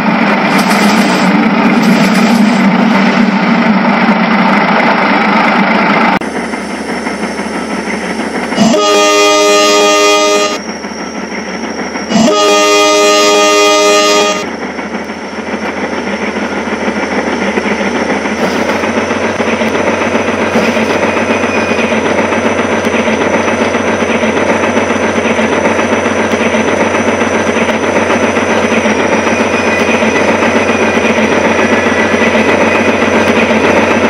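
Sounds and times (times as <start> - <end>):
electronic train horn blasts: 8.6 - 10.7, 12.1 - 14.5.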